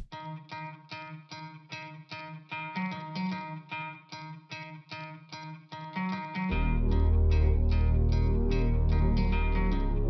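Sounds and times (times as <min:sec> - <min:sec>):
deep bass: 0:06.5 - 0:10.0
plucked notes: 0:06.5 - 0:10.0.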